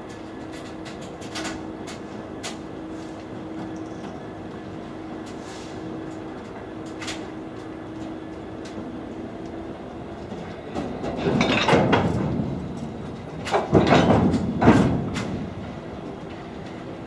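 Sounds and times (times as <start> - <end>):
wheels clattering over rail joints: 9.9 - 17.0.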